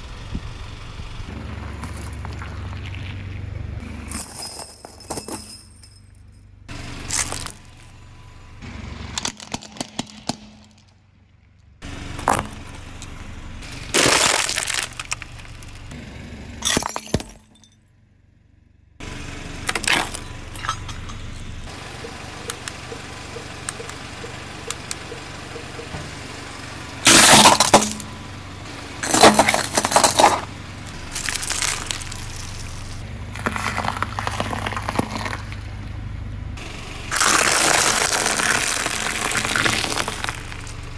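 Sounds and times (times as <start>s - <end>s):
metallic clinking and scraping: 4.0s - 6.5s, 29.0s - 30.5s
tyre crushing objects: 29.0s - 30.5s, 33.3s - 35.6s.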